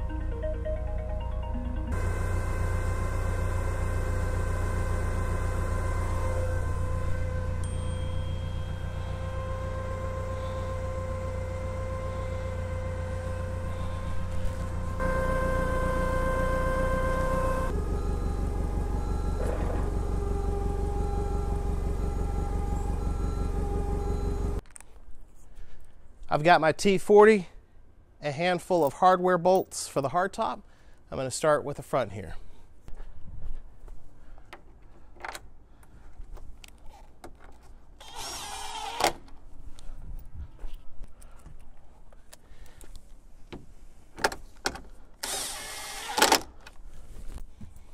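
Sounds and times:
forklift engine running: 0.0 - 24.6
steady whine: 0.0 - 24.6
drill stopping with sharp click: 38.0 - 39.2, 45.2 - 46.5
power drill driving a screw: 38.0 - 39.2, 45.2 - 46.5.

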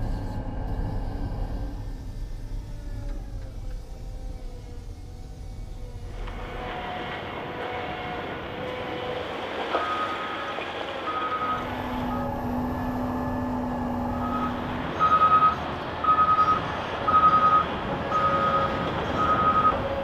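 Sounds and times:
low hum: 0.0 - 8.8
diesel engine under load: 0.0 - 20.0
reversing alarm beeping: 9.8 - 19.8.

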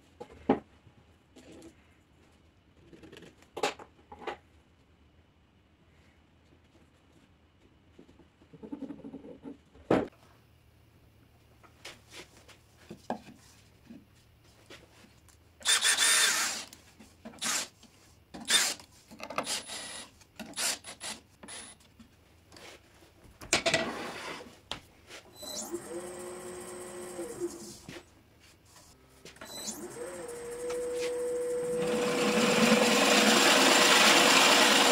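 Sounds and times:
cordless drill boring into wood: 15.6 - 16.7, 17.4 - 17.7, 18.5 - 18.8, 19.4 - 20.0, 20.6 - 21.7, 29.6 - 34.9
wood lathe running: 29.8 - 34.9.

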